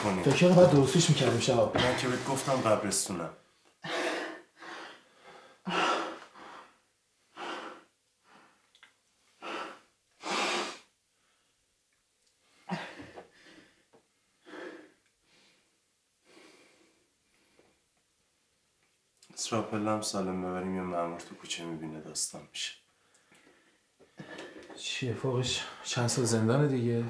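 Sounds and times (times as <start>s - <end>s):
men breathing heavily: 23.2s - 24.8s.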